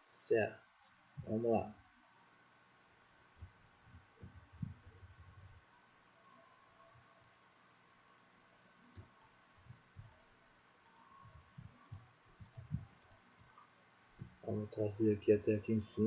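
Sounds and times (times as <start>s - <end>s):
soft low thumps: 3.4s - 5.6s, 11.2s - 13.0s
computer mouse clicks: 7.2s - 8.3s, 8.9s - 14.3s.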